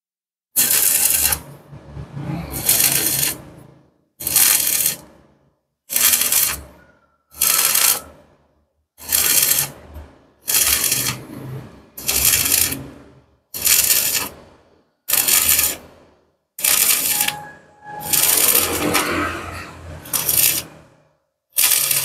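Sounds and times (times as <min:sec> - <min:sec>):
welding arc crackling: 0:00.6 - 0:01.6, 0:02.4 - 0:03.5, 0:04.2 - 0:05.2, 0:05.9 - 0:06.7, 0:07.3 - 0:08.1, 0:09.0 - 0:09.8, 0:10.4 - 0:11.4, 0:12.0 - 0:14.4, 0:15.1 - 0:15.9, 0:16.6 - 0:20.9, 0:21.5 - 0:22.0.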